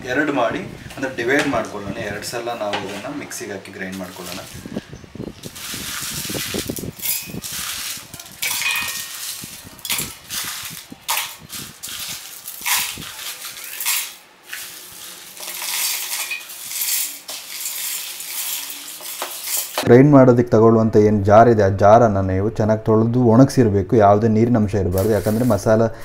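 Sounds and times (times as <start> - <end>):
spices rattling into steel jar: 5.6 - 19.8.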